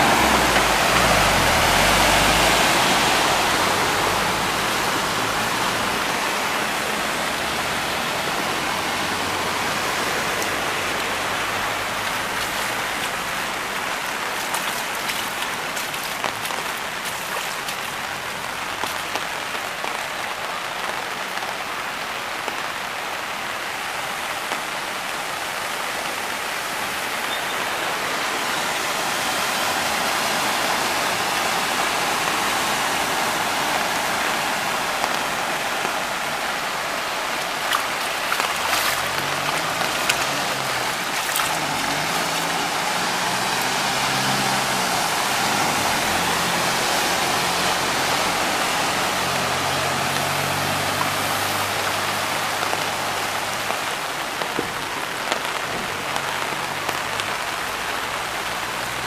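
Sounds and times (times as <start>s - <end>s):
heavy rain on street: 0.0s - 59.0s
sharp rain taps: 0.0s - 59.0s
bus engine hum: 39.0s - 52.0s.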